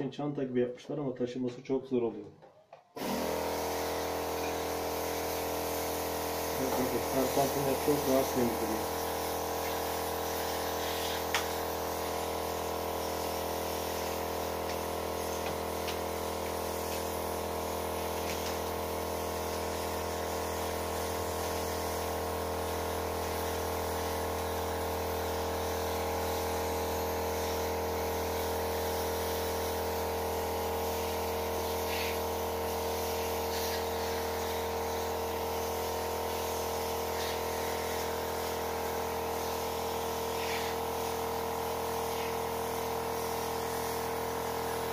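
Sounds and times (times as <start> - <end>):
electric pump humming: 3.0 - 44.9
water spray hiss: 3.0 - 44.9.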